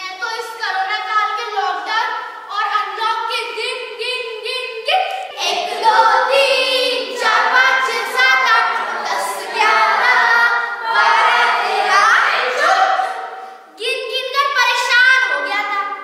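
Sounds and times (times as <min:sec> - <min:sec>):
children singing in chorus: 0:05.4 - 0:13.4.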